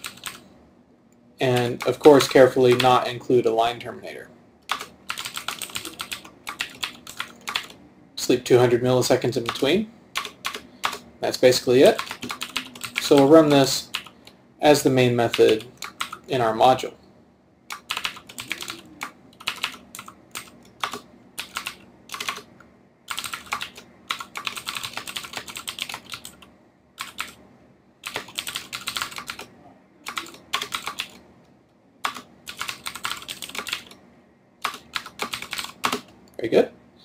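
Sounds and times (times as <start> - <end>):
typing on computer keyboard: 0.0 - 0.4, 1.5 - 3.0, 4.7 - 7.8, 10.2 - 11.0, 11.9 - 13.3, 15.3 - 16.3, 17.7 - 22.5, 23.1 - 27.4, 28.0 - 31.2, 32.0 - 34.0, 34.6 - 36.1.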